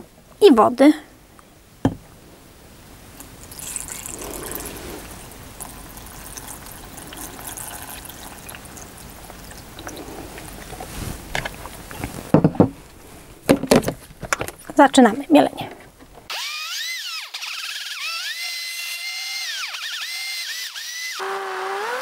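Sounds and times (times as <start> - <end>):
water pouring into blender jar: 3.4 - 10.0.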